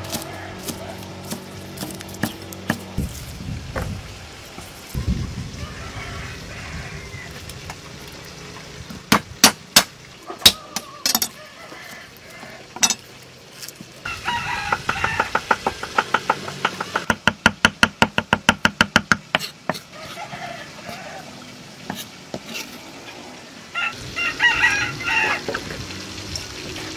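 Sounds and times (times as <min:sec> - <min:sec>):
cleaver chopping on wooden board: 0:00.1 - 0:02.9, 0:14.8 - 0:19.8.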